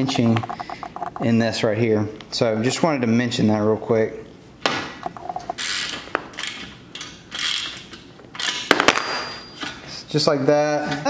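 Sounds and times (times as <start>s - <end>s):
socket ratchet clicking: 5.0s - 8.7s.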